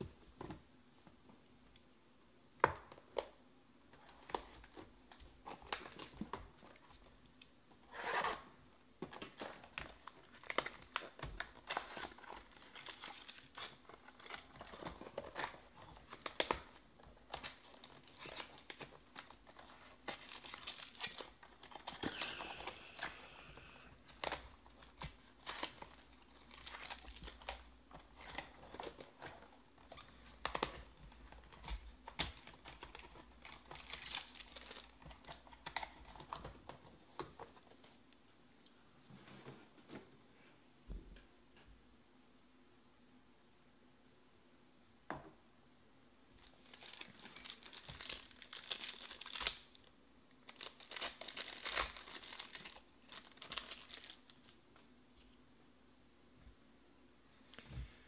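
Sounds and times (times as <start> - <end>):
wrappers crinkling and tearing: 9.2 - 36.6, 46.4 - 54.6.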